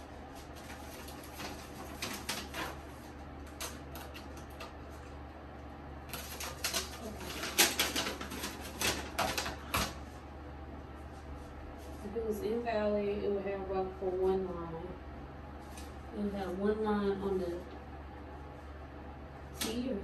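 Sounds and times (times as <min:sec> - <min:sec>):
paper rustling and crinkling: 0:00.3 - 0:05.2, 0:06.1 - 0:10.0.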